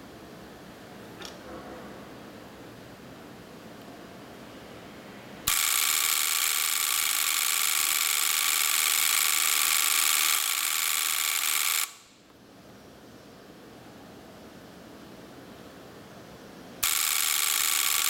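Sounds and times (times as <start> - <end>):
relays buzzing harshly: 5.5 - 12.0, 16.8 - 18.0.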